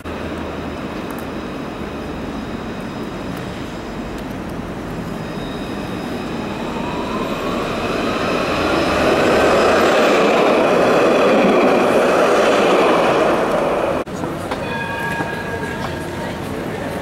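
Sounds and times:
tram wheels on rails: 0.0 - 17.0
high whine rising in pitch: 5.0 - 14.0.

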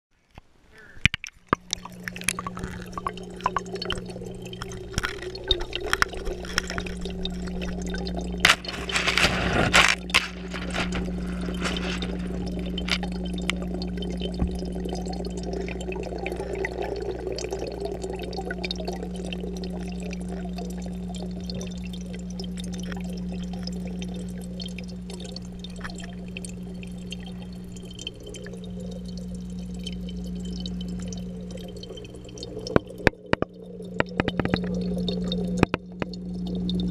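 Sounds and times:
aquarium pump hum: 0.7 - 36.9
knocks and splashes: 1.0 - 15.1, 32.7 - 36.2
air bubbles bubbling underwater: 1.3 - 36.9.

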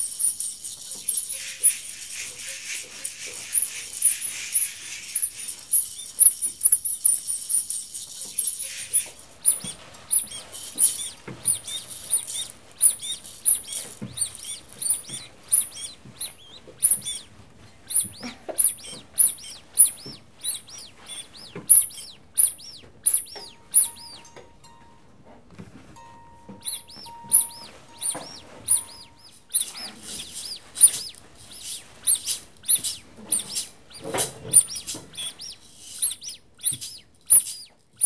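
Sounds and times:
bird chirping: 0.0 - 25.0, 26.0 - 38.0
faint steady tone: 21.8 - 31.0.

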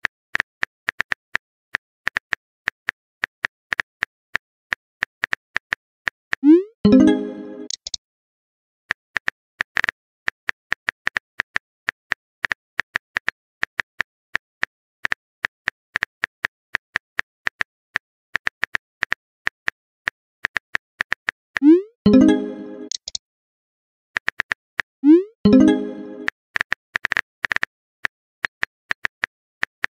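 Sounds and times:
phone keyboard typing clicks: 6.9 - 8.0, 21.6 - 23.2.

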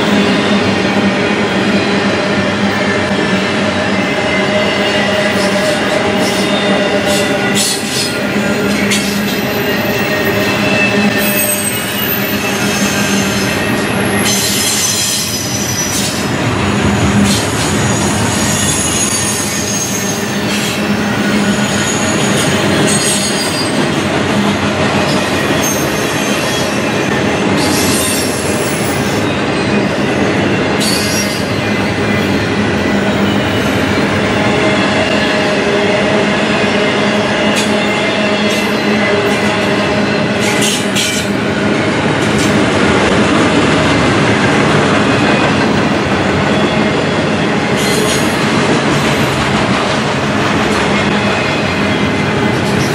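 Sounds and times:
train wheels rumbling on rails: 0.0 - 52.9
high-pitched wheel squeals: 4.3 - 16.2, 17.3 - 23.8.

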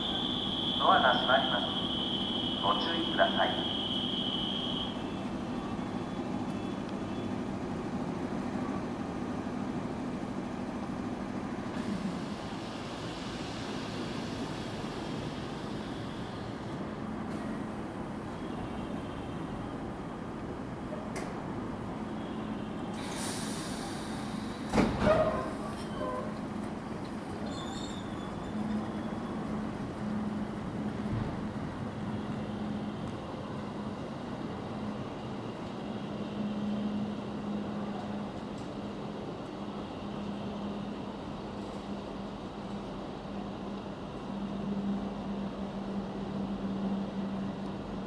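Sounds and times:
electric train humming: 0.0 - 20.8
train equipment humming: 0.0 - 48.0
air hiss: 22.9 - 24.7.

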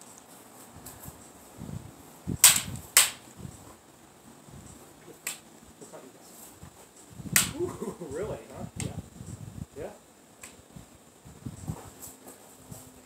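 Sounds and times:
wind rumble on microphone: 0.7 - 3.8, 4.4 - 4.8, 6.6 - 10.0, 10.6 - 13.0.

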